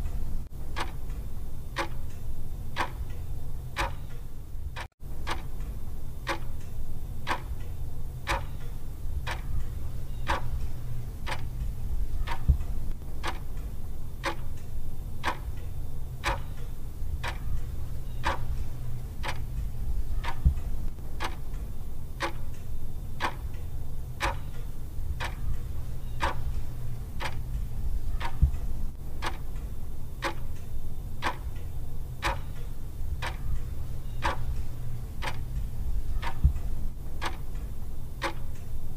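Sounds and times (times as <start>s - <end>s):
clock ticking: 0.0s - 3.2s, 3.8s - 7.7s, 8.3s - 38.7s
low steady hum: 0.0s - 38.9s.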